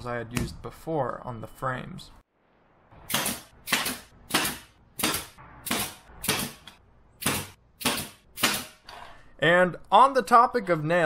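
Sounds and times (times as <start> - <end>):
nail gun shots: 3.1 - 8.9.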